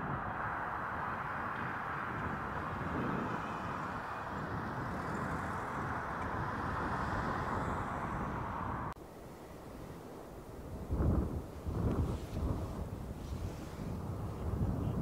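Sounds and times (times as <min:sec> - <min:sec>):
cars driving past: 0:00.0 - 0:10.0.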